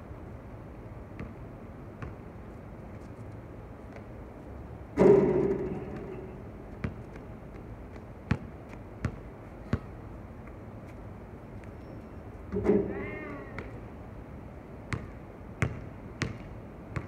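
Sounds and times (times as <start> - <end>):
basketball clanging off rim: 5.0 - 6.4
ball bouncing on hard court: 5.0 - 7.2, 8.3 - 9.9, 14.9 - 17.0.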